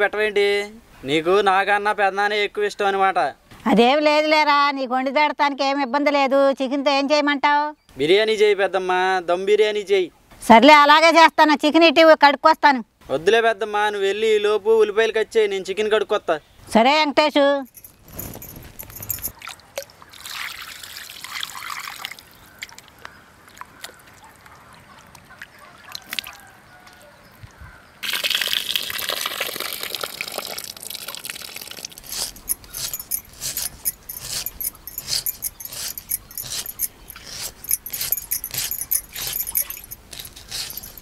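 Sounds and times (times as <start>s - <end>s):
water poured from a jug: 19.3s - 22.3s, 28.0s - 32.3s.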